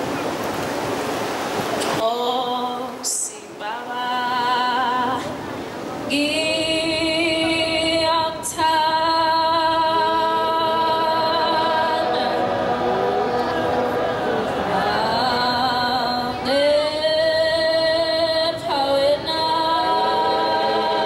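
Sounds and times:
congregation singing a hymn: 6.1s - 21.0s.

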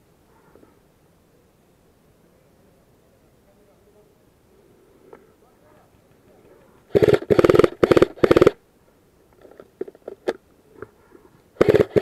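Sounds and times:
airsoft rifle full-auto bursts: 6.9s - 8.6s, 11.6s - 12.0s.

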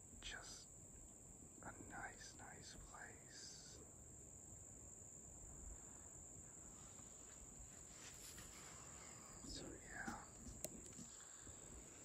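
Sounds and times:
crickets trilling: 0.0s - 12.0s
soft rustles: 6.7s - 12.0s.

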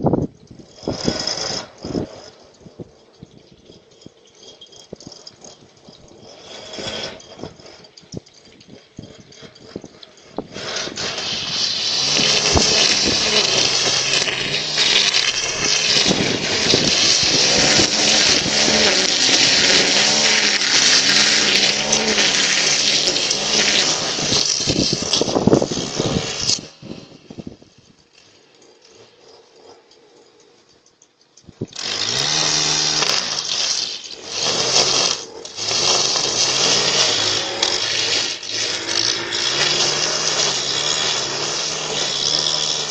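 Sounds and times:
leaf blower running: 0.6s - 2.8s, 4.9s - 30.2s, 31.6s - 42.9s.

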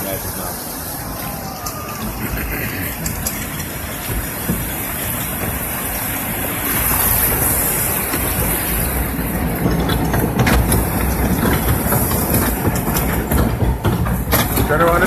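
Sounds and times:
mechanical rumble and clatter: 0.0s - 15.0s.

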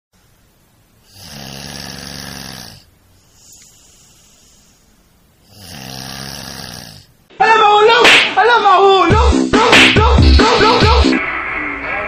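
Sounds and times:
man snoring: 1.0s - 7.1s
faint breath: 3.1s - 5.1s.

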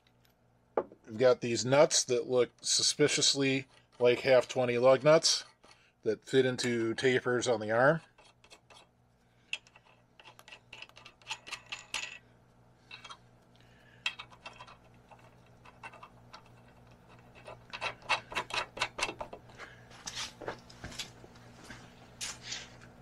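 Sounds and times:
faint steady hum: 0.0s - 23.0s
metal nuts clicking and clinking: 9.5s - 12.2s, 12.9s - 13.2s, 14.0s - 19.4s.

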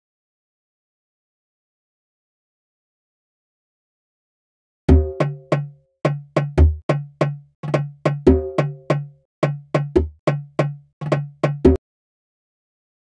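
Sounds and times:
deep djembe hits: 4.9s - 11.8s
hand percussion hits: 4.9s - 11.8s.

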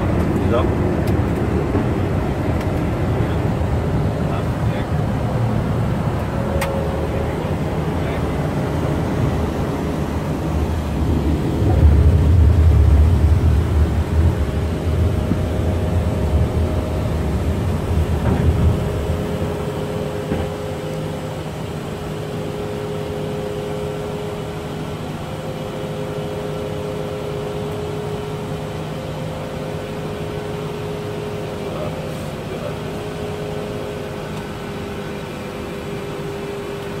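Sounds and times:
heavy low rumble: 0.0s - 21.9s
cockpit hum: 0.0s - 37.0s.

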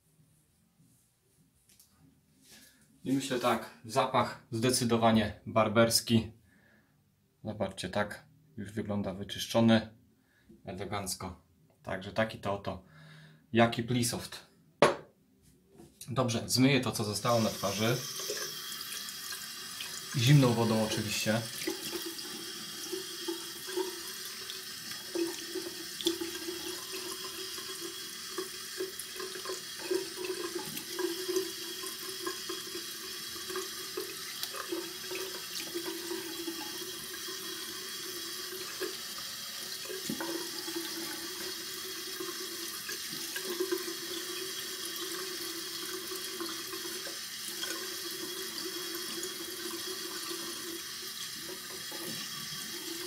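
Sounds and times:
tap water running into sink: 17.2s - 53.0s.

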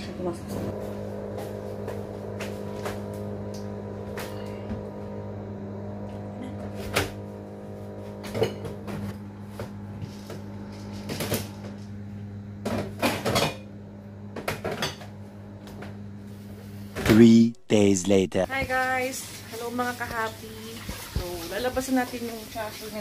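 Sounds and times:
steady low hum: 0.0s - 20.7s.

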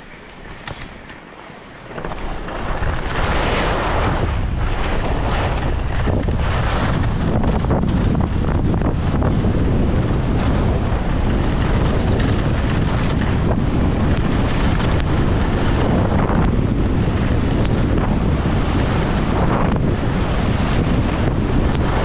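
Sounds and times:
wind buffeting microphone: 0.0s - 22.0s
skis hissing over hard snow: 0.1s - 22.0s.

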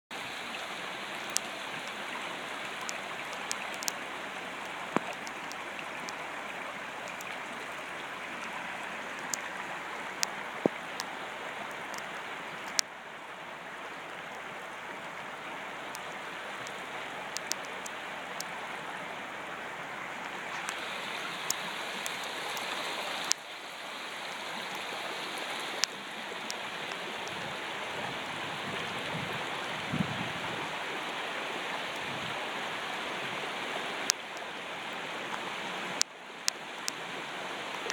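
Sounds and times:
water rushing over road: 0.1s - 37.9s
sharp clicks: 16.7s - 17.9s.

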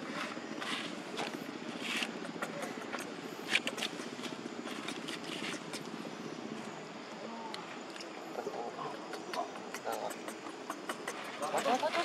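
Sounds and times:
monkeys rustling dry leaves: 0.0s - 6.1s, 10.5s - 12.0s
low background hum: 0.0s - 12.0s.

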